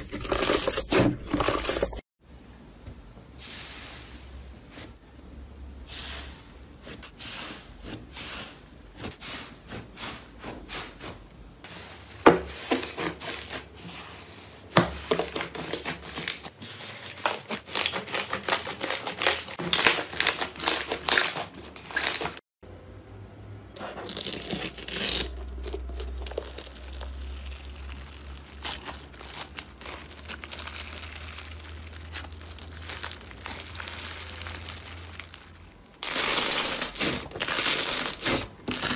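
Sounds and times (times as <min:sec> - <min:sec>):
slime crackling when kneaded: 0:17.2 - 0:22.3, 0:23.9 - 0:38.9
slime squeezed with fine crackle: 0:23.9 - 0:38.4.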